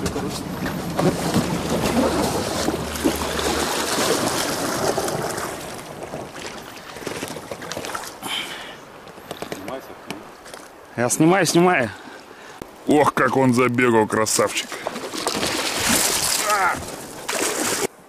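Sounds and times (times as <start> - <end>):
water splashing around boots: 0.0 - 8.2, 14.7 - 17.9.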